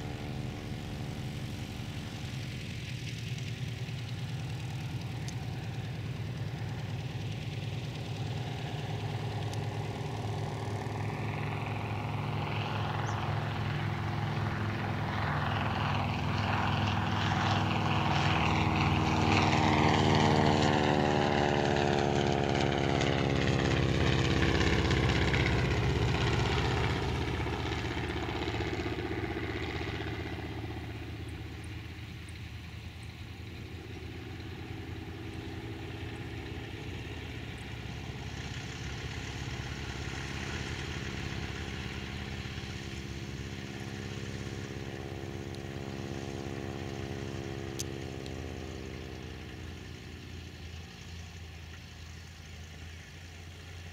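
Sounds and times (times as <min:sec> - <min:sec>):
biplane radial engine: 0:00.0 - 0:53.9.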